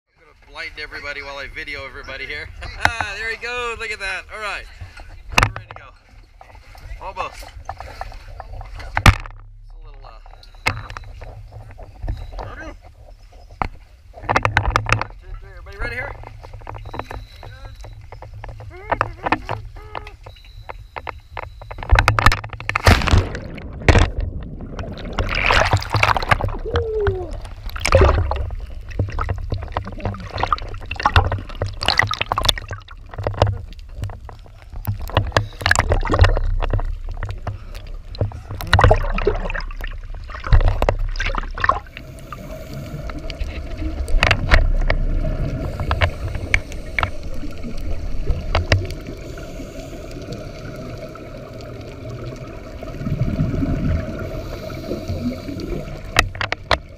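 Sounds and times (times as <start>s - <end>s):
muffled underwater rush: 0.3s - 56.9s
underwater bubbling and gurgling: 0.4s - 56.9s
splash into water: 22.8s - 28.5s.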